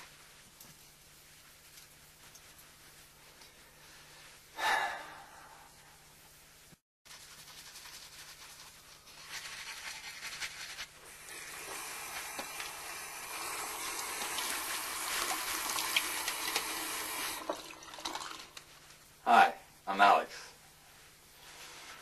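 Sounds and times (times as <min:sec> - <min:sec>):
toothbrush scrubbing: 0:07.1 - 0:17.4
faucet running into sink: 0:11.1 - 0:18.7.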